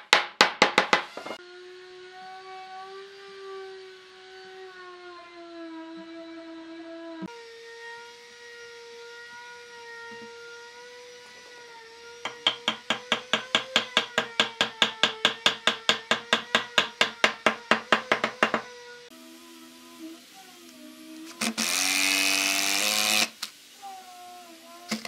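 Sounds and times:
hammer tapping wood: 0.0s - 1.3s, 12.3s - 18.7s.

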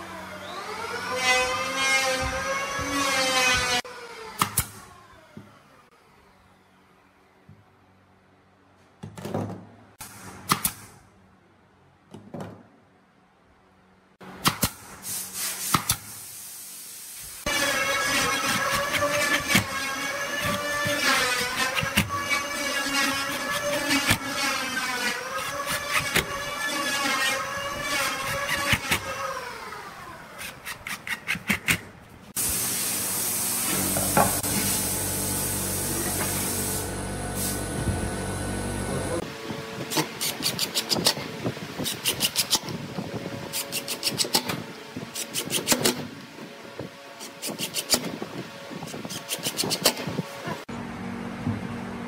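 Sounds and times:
loud hiss and hum: 32.4s - 39.3s
impact driver motor whine: 33.0s - 39.3s.

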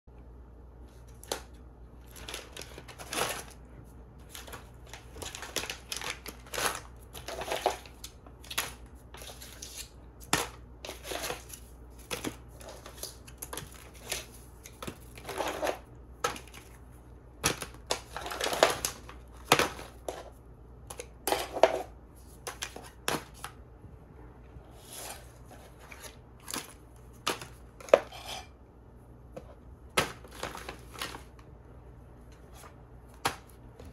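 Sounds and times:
plastic packaging rustling: 1.0s - 20.4s, 29.9s - 31.4s.

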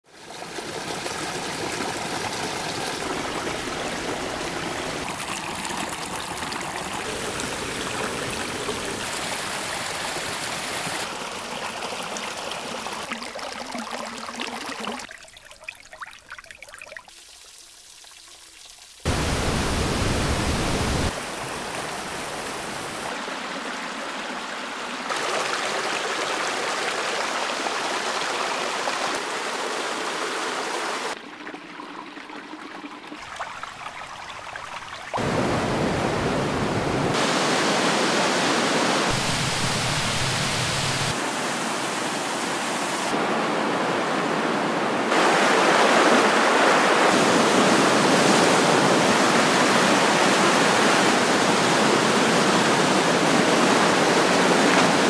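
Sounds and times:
water rushing and trickling: 0.1s - 55.0s
water drips: 13.0s - 19.0s.

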